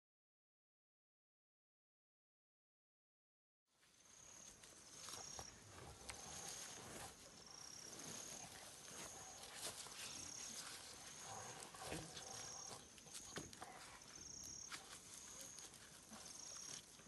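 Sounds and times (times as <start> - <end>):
rustling of dry leaf litter: 3.8 - 17.0.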